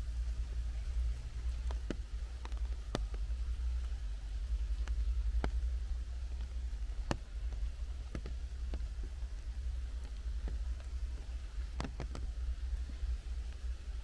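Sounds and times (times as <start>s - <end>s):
raindrops dripping from trees: 0.0s - 14.0s
steady low rumble: 0.0s - 14.0s.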